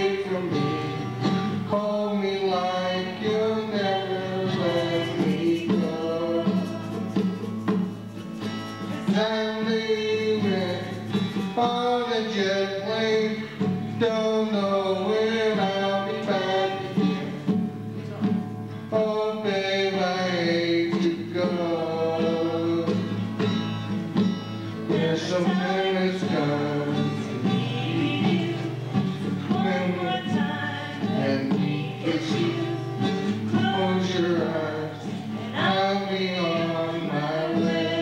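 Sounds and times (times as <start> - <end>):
man singing into a microphone: 0.0 - 7.0, 9.0 - 17.4, 18.8 - 23.2, 24.7 - 38.0
women singing along: 0.0 - 7.1, 9.1 - 11.0, 14.0 - 17.4, 24.9 - 38.0
strummed acoustic guitar: 0.0 - 38.0.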